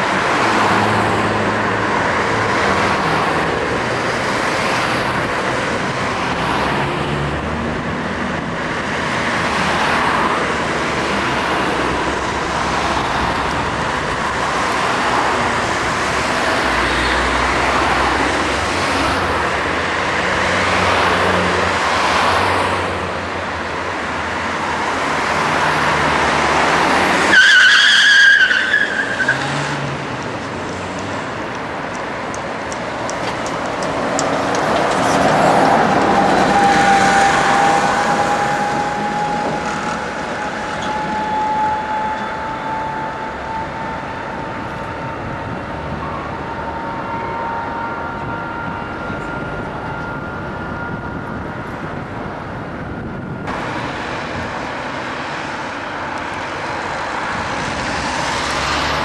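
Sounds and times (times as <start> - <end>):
cars passing: 0.0 - 59.0
loud high squeal: 27.1 - 29.6, 35.4 - 44.7.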